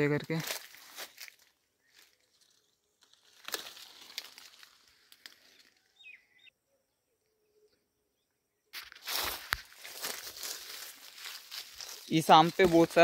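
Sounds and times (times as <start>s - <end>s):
leaves and twigs rustling: 0.0s - 6.1s, 8.7s - 13.0s
bird chirp: 5.4s - 8.7s.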